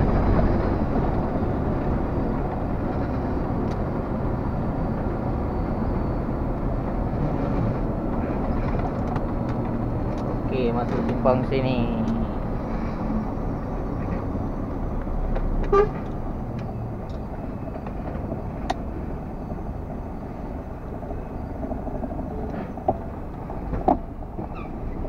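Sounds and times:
diesel truck engine: 0.0s - 25.0s
road noise: 0.0s - 25.0s
pitched horn toot: 15.6s - 16.0s.

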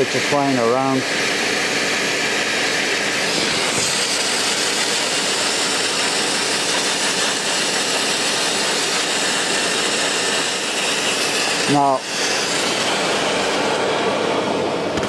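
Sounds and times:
blast nozzle hissing: 0.0s - 15.0s.

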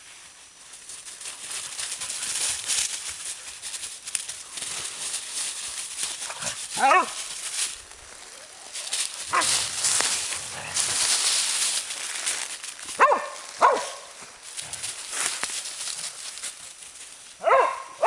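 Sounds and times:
paws scrambling through dry leaves: 0.0s - 18.0s
dogs barking: 6.4s - 7.3s, 9.2s - 9.7s, 12.9s - 14.2s, 17.4s - 18.0s.

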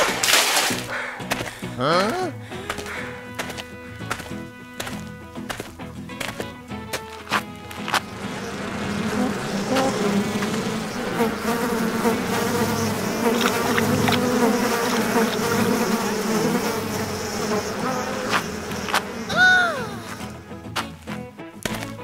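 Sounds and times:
bees buzzing in a swarm: 2.6s - 5.2s, 7.4s - 20.5s.

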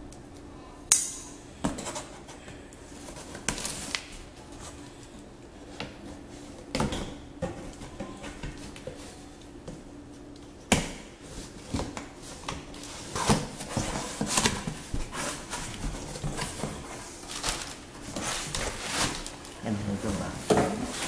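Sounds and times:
cardboard scraping and tearing: 12.9s - 19.3s.

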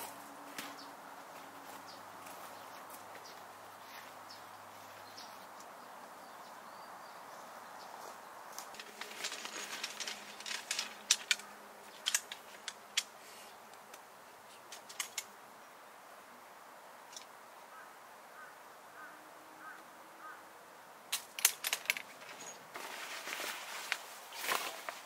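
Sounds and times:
outdoor background hiss: 0.0s - 25.0s
camp cot poles clicking: 8.6s - 13.2s, 14.6s - 15.4s, 21.1s - 25.0s.

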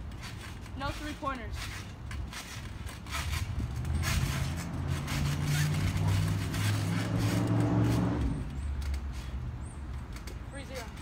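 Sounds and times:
low engine hum: 3.6s - 9.1s.

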